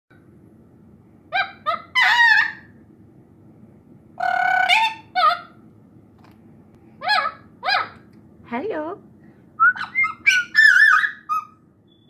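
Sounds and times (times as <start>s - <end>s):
parrot squawking: 1.3s - 2.8s, 4.2s - 5.6s, 7.0s - 8.0s, 9.7s - 11.7s.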